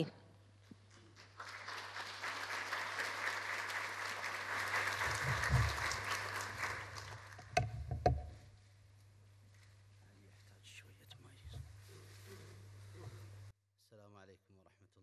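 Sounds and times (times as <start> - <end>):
audience applauding: 0.8 - 7.6
sharp knocks: 7.6 - 8.4.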